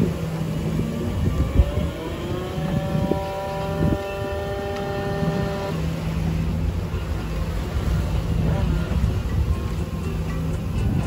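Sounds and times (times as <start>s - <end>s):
sea noise: 0.0s - 11.0s
wind: 0.0s - 11.0s
electric winch motor whine: 0.4s - 6.4s.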